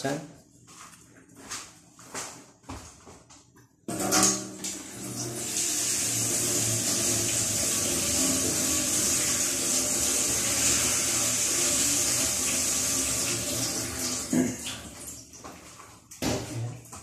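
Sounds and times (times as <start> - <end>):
tap water running onto cabbage: 4.6 - 16.5.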